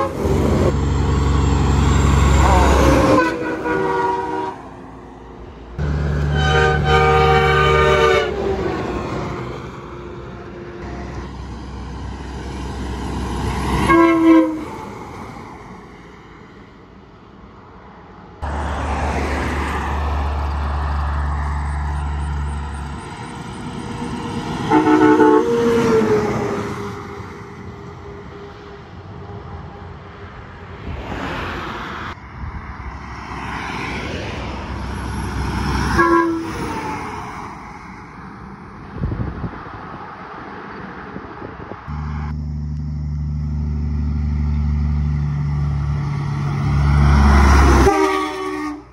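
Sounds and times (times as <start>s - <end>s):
truck air horn blasts: 0.0s - 0.8s, 2.4s - 4.8s, 5.8s - 8.7s, 13.8s - 14.9s, 24.6s - 30.0s, 35.8s - 36.9s, 47.2s - 48.9s
truck engine and tyre noise: 0.0s - 48.9s.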